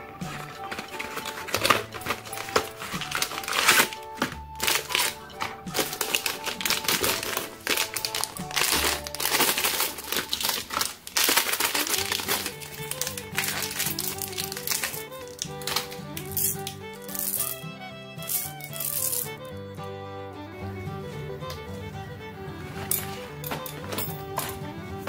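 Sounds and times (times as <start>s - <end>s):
plastic wrappers crinkling: 0.0s - 17.6s, 18.2s - 19.5s
background music: 0.0s - 25.0s
cardboard box opened: 0.3s - 16.0s.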